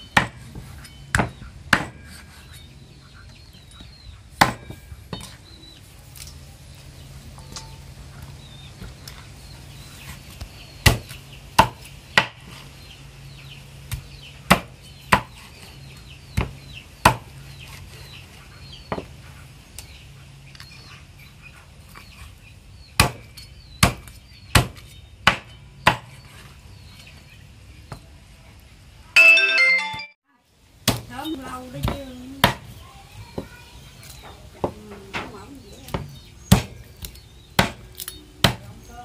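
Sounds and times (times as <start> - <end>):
cleaver chopping meat and bone: 0.1 - 2.3, 4.4 - 5.4, 10.8 - 12.6, 13.9 - 15.5, 16.3 - 17.3, 23.0 - 26.2, 30.8 - 31.1, 31.8 - 32.7, 35.9 - 38.8.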